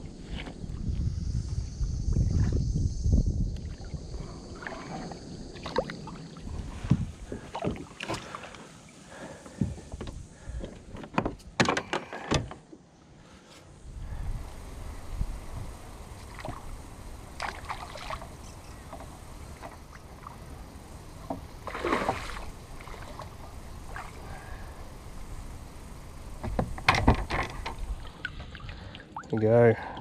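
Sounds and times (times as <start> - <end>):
water sounds: 3.5 - 10.6, 14.1 - 30.0
sharp knocks and clicks: 26.4 - 27.8.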